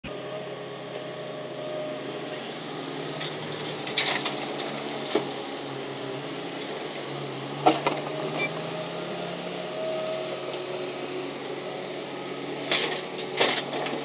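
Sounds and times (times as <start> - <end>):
excavator diesel engine running: 0.0 - 14.0
excavator knocks and clatters: 12.7 - 14.0.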